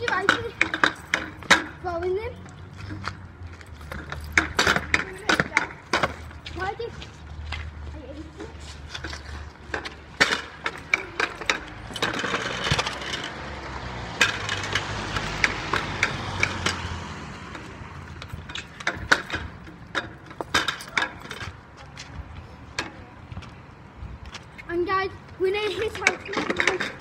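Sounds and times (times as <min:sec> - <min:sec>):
pogo sticks knocking on paving: 0:00.0 - 0:01.8, 0:03.8 - 0:07.0, 0:07.6 - 0:13.4, 0:17.5 - 0:23.6, 0:25.4 - 0:27.0.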